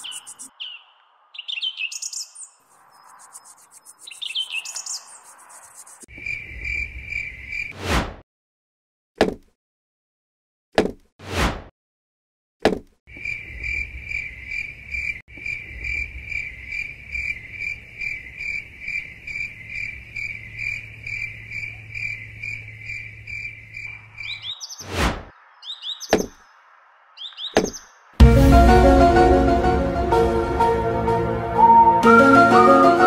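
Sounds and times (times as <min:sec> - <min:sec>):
cricket chirping: 0:00.0 - 0:00.5, 0:01.9 - 0:07.7, 0:13.1 - 0:24.8
rising bird-like chirps: 0:00.0 - 0:07.7, 0:20.2 - 0:26.6, 0:27.2 - 0:28.1.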